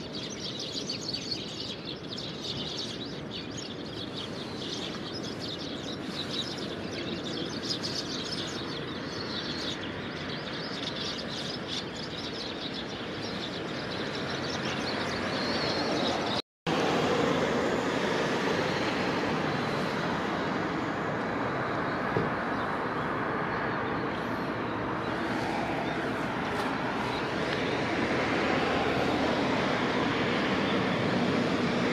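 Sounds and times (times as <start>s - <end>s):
sparrows chirping: 0.0s - 16.4s, 21.4s - 31.9s
road traffic noise: 0.0s - 31.9s
vehicle passing: 13.9s - 31.9s.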